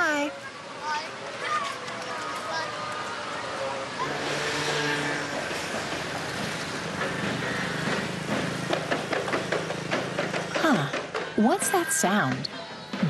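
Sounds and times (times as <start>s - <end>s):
street traffic: 0.0s - 13.0s
drum beats: 7.0s - 13.0s.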